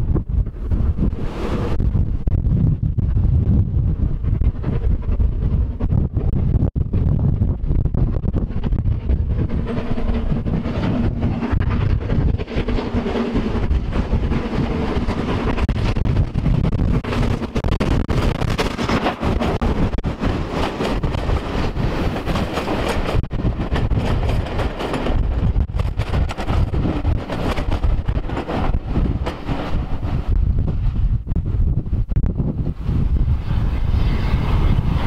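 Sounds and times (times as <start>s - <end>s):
steam locomotive passing: 7.9s - 35.0s
train wheels clattering over rail joints: 8.4s - 30.9s.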